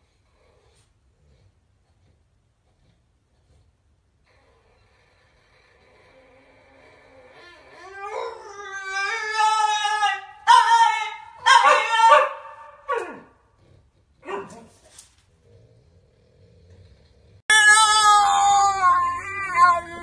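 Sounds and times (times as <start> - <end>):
dog howling: 6.0 - 13.3, 17.5 - 20.0.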